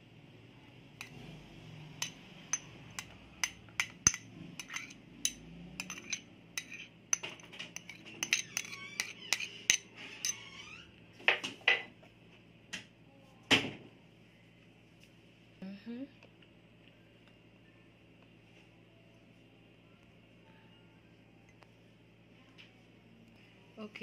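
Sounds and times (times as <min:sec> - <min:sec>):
metal spoon clinking on ceramic plate: 0:02.0 - 0:10.4.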